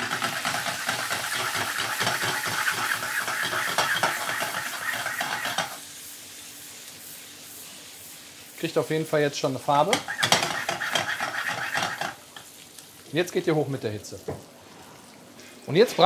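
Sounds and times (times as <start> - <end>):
potatoes sizzling in a frying pan: 0.0 - 14.5.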